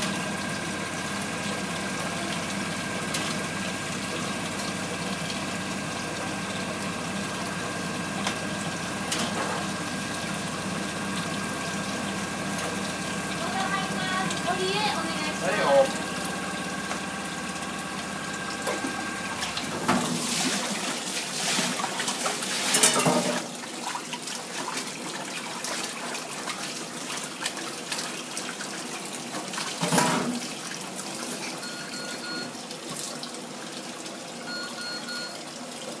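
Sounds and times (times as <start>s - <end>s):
kitchen machine humming: 0.0s - 32.8s, 33.4s - 36.0s
tap water running into sink: 0.0s - 36.0s
water splashing: 11.0s - 28.7s.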